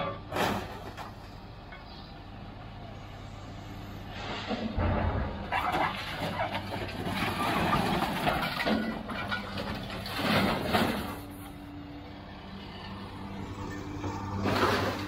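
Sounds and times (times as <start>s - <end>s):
scrap metal clanking and scraping: 0.0s - 2.0s, 4.1s - 11.6s, 13.6s - 15.0s
diesel engine running: 0.0s - 15.0s.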